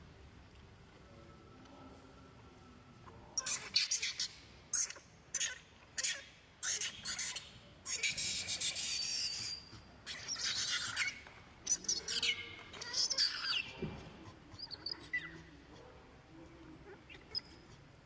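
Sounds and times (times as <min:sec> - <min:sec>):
infant monkey crying: 0:03.4 - 0:15.5.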